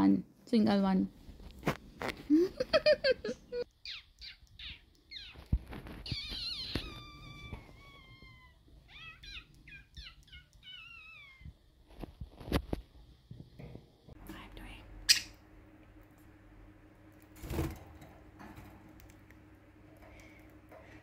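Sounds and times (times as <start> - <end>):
budgerigars chirping and warbling: 8.9 - 11.0.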